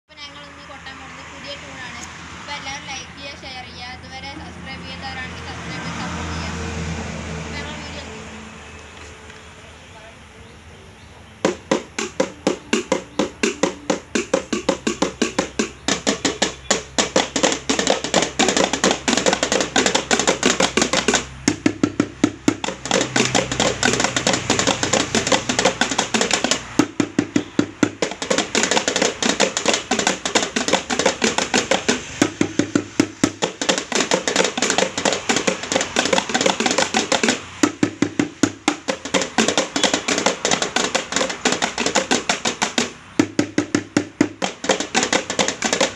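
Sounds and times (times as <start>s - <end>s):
sticks drumming on buckets and containers: 11.4s - 45.9s.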